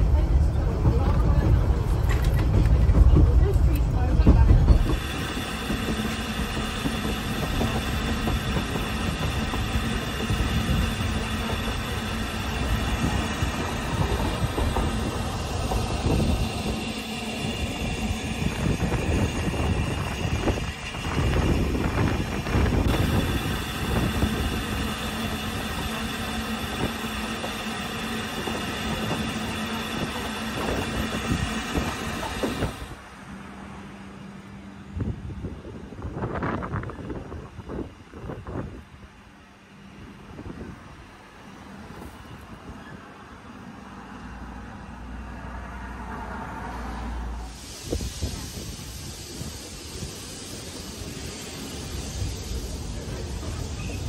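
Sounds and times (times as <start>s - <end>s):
carriage low rumble: 0.0s - 33.6s
steam locomotive hissing: 1.9s - 33.4s, 43.8s - 54.0s.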